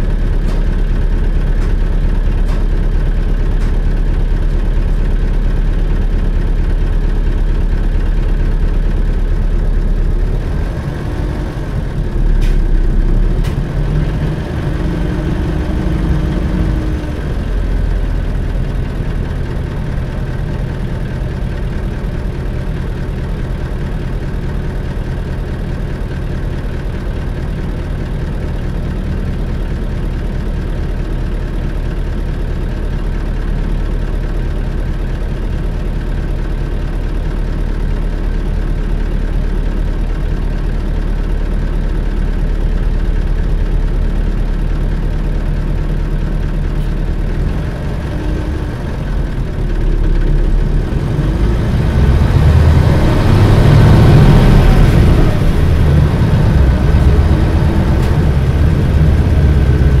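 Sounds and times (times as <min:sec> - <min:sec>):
bus diesel engine idling and revving: 0:00.0 - 1:00.0.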